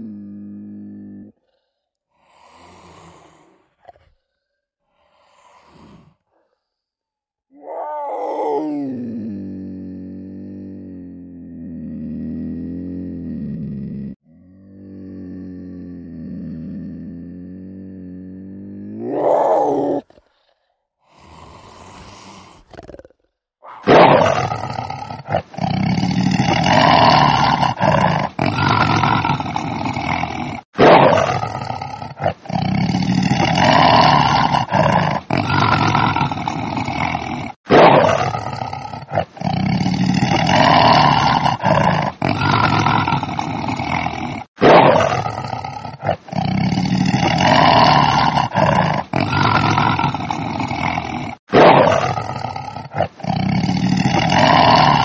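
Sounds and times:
tiger roaring: 11.5 - 20.4, 21.2 - 55.0.

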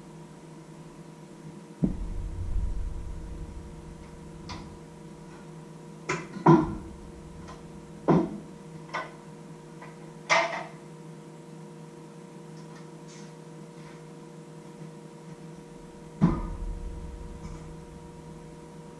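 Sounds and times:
steady low hum: 0.0 - 9.8, 15.5 - 18.9.

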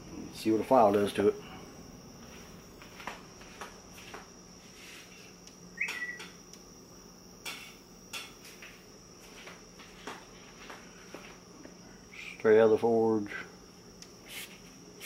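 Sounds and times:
short squeak: 5.8 - 6.3.

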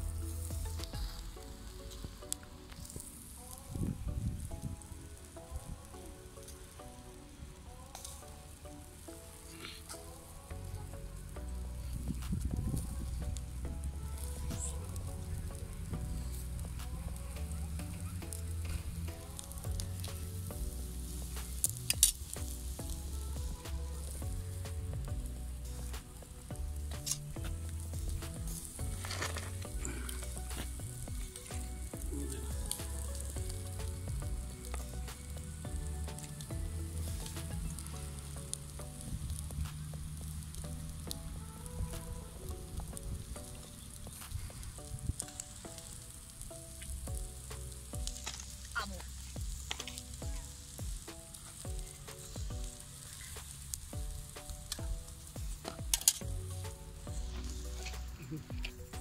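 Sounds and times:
background music with bass: 0.0 - 59.0
fine sizzling crackle: 0.0 - 59.0
keyboard chords: 0.0 - 59.0
kick drum with dropping pitch: 27.4 - 29.0, 32.0 - 34.5, 36.5 - 37.7, 49.4 - 49.6, 50.2 - 51.0.

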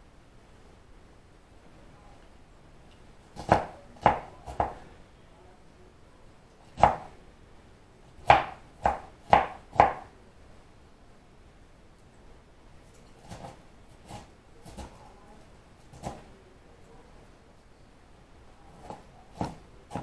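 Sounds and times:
knife chopping on cutting board: 3.4 - 4.8, 6.8 - 7.1, 8.2 - 10.1, 13.2 - 15.0, 15.9 - 16.3, 18.8 - 20.0.

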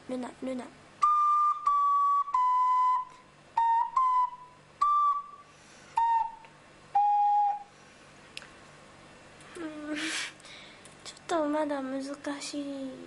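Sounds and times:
flute-like wind instrument melody: 1.0 - 7.7.

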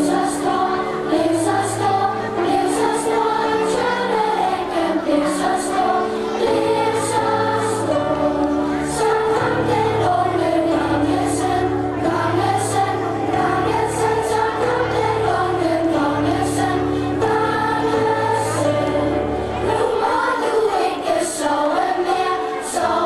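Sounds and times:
group of voices singing: 0.0 - 23.0.

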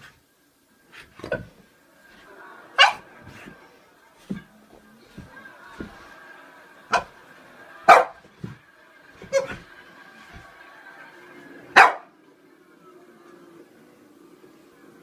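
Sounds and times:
dog barking: 2.8 - 3.0, 7.9 - 8.2, 11.8 - 12.1.

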